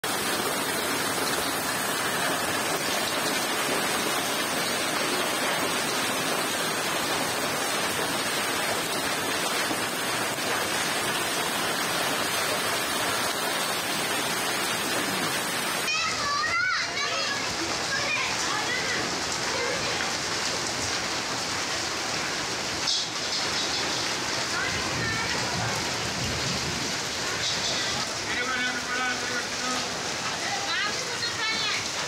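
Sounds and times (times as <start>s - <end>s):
hail and rain on concrete: 0.0s - 32.0s.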